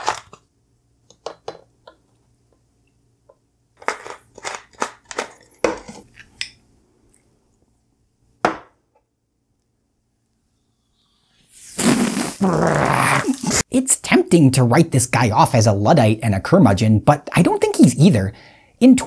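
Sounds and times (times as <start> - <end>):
sharp knock on counter: 8.4 - 8.8.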